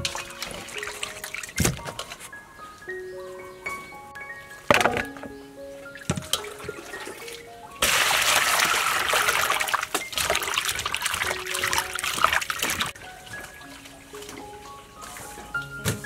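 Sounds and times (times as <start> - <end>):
soft background music: 0.0 - 16.0
hands splashing in water bowl: 7.8 - 13.6.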